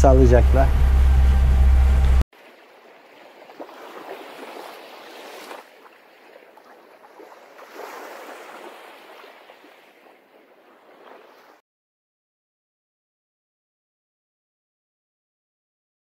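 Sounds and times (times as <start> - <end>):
sea water washing and splashing: 2.3 - 11.6.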